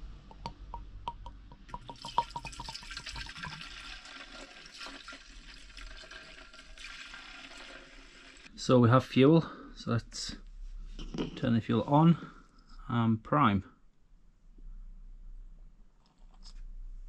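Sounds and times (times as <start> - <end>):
small ticks and drips: 0.3 - 3.9
fuel pouring into tank: 1.7 - 8.5.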